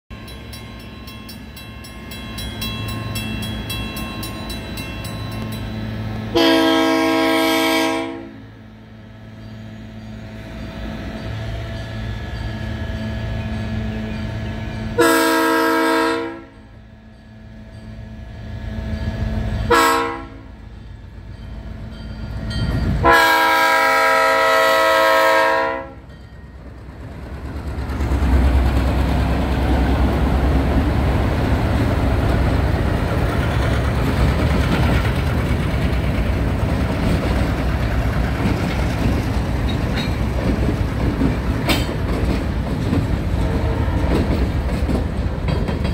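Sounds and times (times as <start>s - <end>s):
locomotive engine rumble: 0.2s - 45.9s
locomotive horn blasts: 6.3s - 8.6s, 15.0s - 16.6s, 19.6s - 20.6s, 23.0s - 26.1s, 43.4s - 44.3s
wheels clattering over rails: 26.6s - 45.9s.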